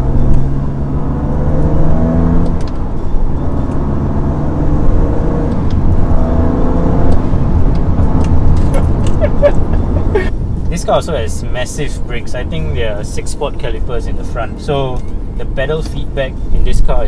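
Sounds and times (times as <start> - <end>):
car engine pulling: 0.0 - 17.0
tyre and road rumble: 0.0 - 17.0.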